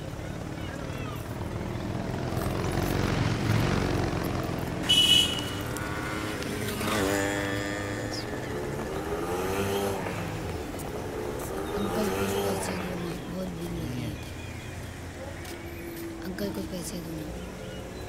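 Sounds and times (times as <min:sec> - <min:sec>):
vehicles rumbling past: 0:00.0 - 0:18.0
high-pitched horn honk: 0:04.8 - 0:06.0.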